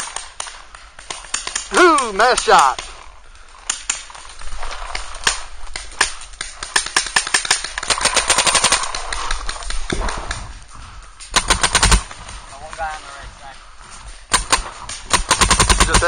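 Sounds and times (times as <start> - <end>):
paintball markers firing: 0.0 - 3.0, 4.9 - 10.5, 11.3 - 12.4, 14.3 - 16.0.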